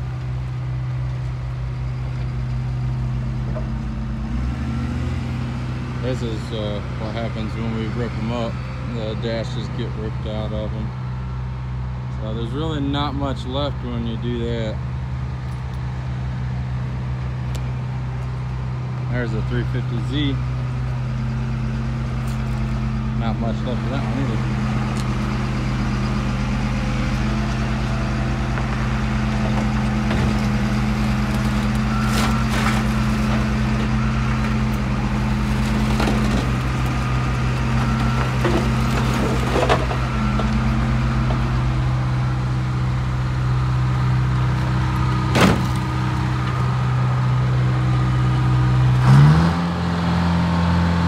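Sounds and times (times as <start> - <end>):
car crusher engine idling: 5.0 - 49.0.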